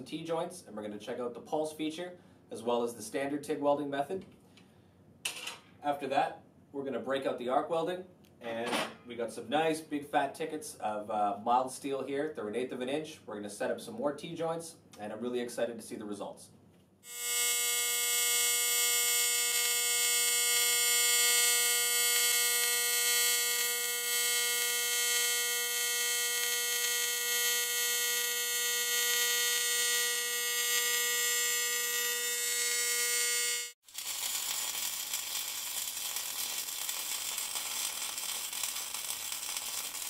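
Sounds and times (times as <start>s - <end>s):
welding arc buzzing: 17.0s - 40.0s
welding arc crackling hiss: 17.1s - 40.0s.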